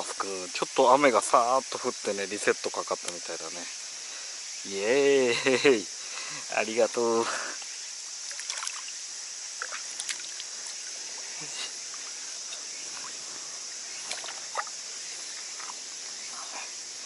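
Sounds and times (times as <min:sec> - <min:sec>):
high insect hiss: 0:00.0 - 0:17.0
shallow water sloshing and dripping: 0:08.2 - 0:11.2, 0:12.0 - 0:13.2, 0:13.9 - 0:15.9
small splashes: 0:08.2 - 0:11.6, 0:13.9 - 0:15.8.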